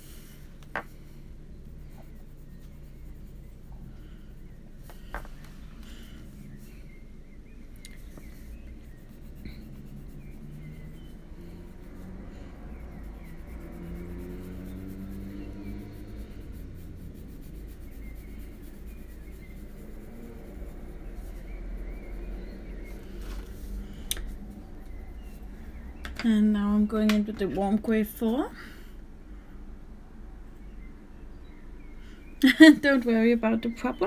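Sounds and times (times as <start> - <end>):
low steady hum: 0.0 - 34.0
coloured pencil scratching on paper: 0.2 - 5.0, 8.0 - 26.0.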